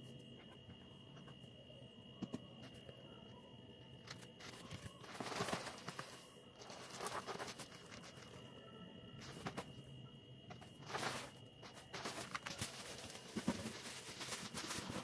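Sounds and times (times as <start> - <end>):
plastic packaging rustling: 4.1 - 8.4, 9.2 - 9.7, 10.5 - 15.0.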